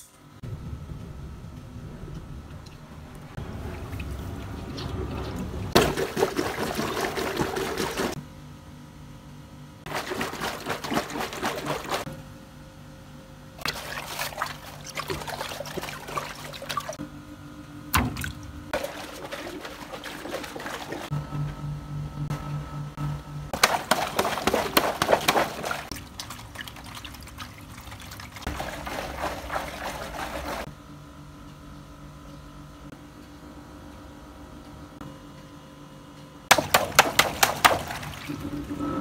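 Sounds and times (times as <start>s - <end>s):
water rushing into rubber toy: 9.9s - 12.1s, 23.6s - 30.7s.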